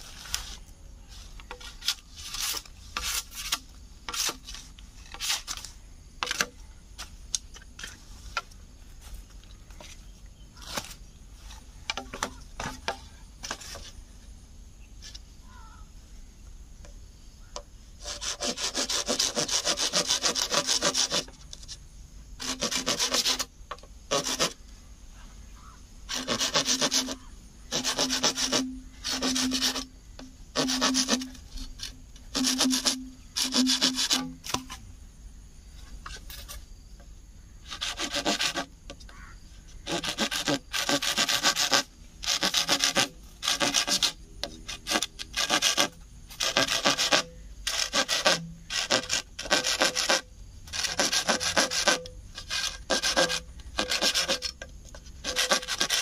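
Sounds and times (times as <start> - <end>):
hand saw rasping through bamboo: 1.4 - 6.5, 18.0 - 21.8, 22.4 - 23.5, 24.1 - 24.6, 26.1 - 34.8, 37.6 - 38.7, 39.8 - 56.0.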